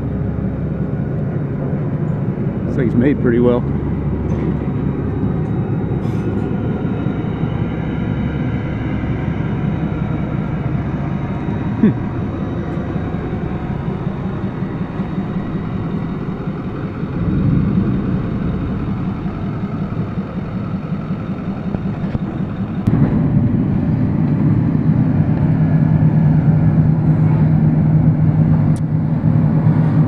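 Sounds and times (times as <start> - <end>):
engine running with low rumble: 0.0 - 30.0.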